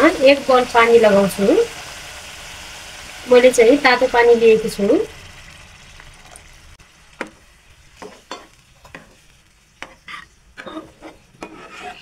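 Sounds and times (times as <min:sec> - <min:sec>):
sauce sizzling: 0:00.0 - 0:12.0
metal spatula scraping a pan: 0:08.0 - 0:12.0.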